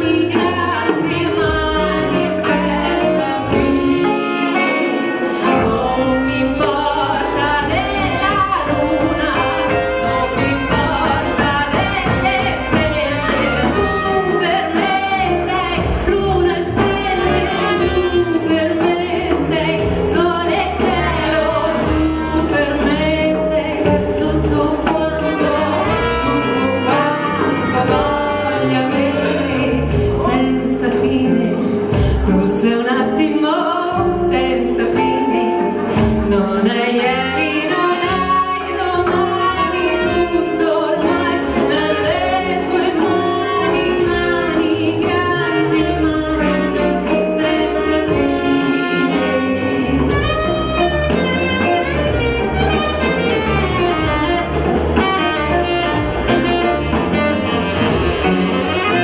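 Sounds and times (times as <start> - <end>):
live band music: 0.0 - 59.0
woman singing: 0.0 - 59.0.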